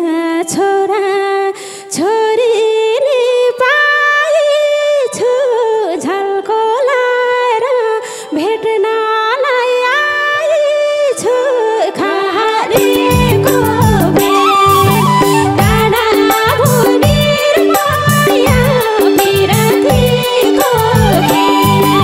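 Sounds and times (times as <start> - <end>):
woman singing into microphone: 0.0 - 22.0
instruments playing: 12.8 - 22.0.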